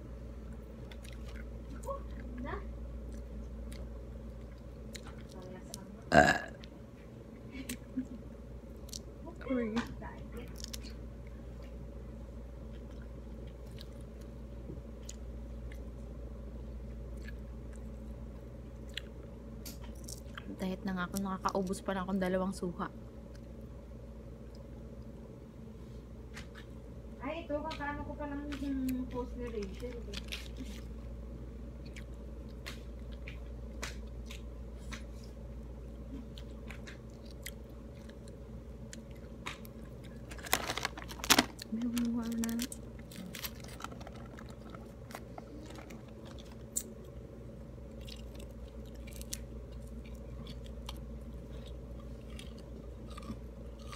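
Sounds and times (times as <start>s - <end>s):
steady low hum: 0.0s - 53.9s
person chewing fruit: 0.4s - 2.4s, 3.0s - 6.8s, 8.7s - 9.2s, 10.4s - 11.9s, 12.6s - 21.7s, 29.5s - 53.9s.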